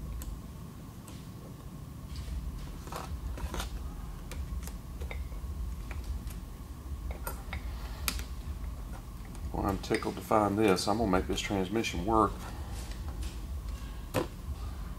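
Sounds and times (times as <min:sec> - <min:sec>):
low hum: 0:00.0 - 0:14.9.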